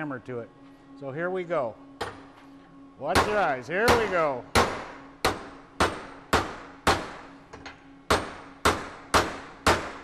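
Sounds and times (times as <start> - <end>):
hammer striking metal: 3.1 - 7.2, 8.1 - 10.0.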